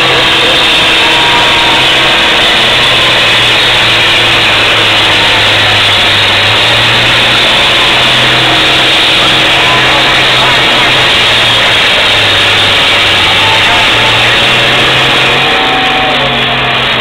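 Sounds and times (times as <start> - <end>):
tractor engine under full load: 0.0 - 17.0.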